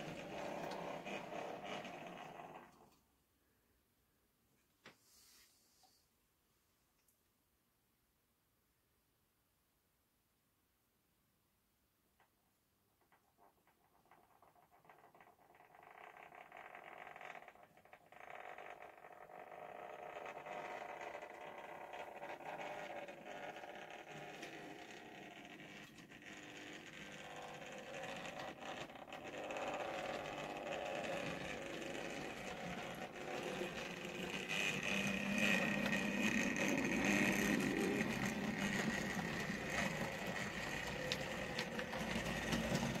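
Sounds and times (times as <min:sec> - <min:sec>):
wheel rumble: 0:00.0 - 0:02.7, 0:27.2 - 0:43.0
model train motor whir: 0:00.0 - 0:02.8, 0:15.4 - 0:43.0.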